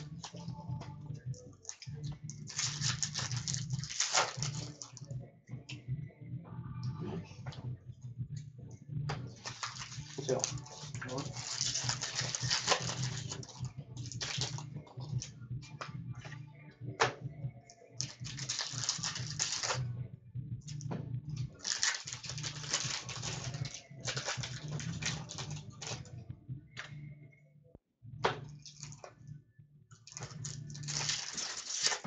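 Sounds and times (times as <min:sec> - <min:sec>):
cards crinkling and rustling: 0:01.6 - 0:05.0, 0:09.4 - 0:15.2, 0:18.0 - 0:19.8, 0:21.6 - 0:26.1, 0:30.1 - 0:32.0.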